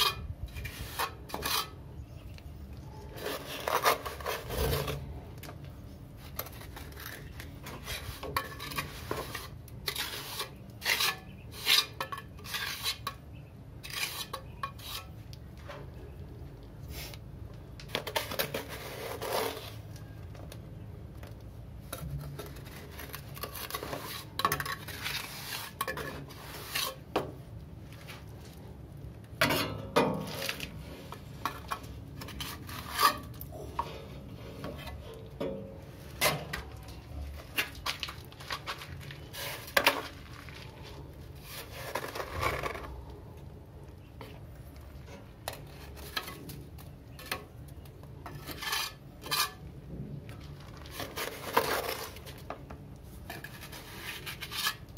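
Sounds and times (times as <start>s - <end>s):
trowel scraping and tapping mortar: 3.1s - 15.9s, 50.3s - 54.9s.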